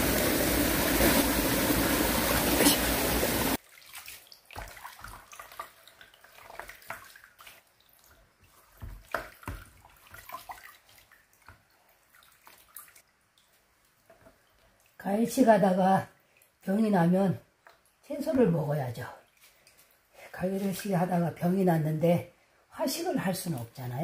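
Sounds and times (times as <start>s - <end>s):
stream rushing: 0.0s - 3.6s.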